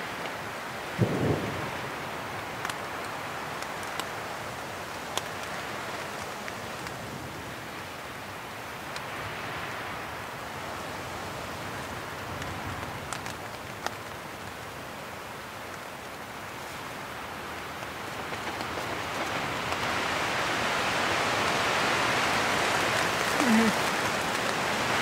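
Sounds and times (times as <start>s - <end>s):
rain beating on tent: 0.0s - 25.0s
storm wind on tent: 0.8s - 8.0s.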